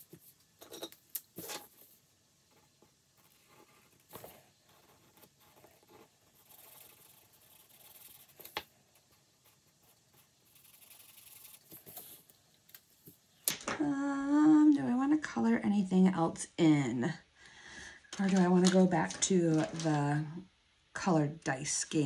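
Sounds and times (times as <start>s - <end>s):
colouring tool scratching paper: 2.5s - 12.2s.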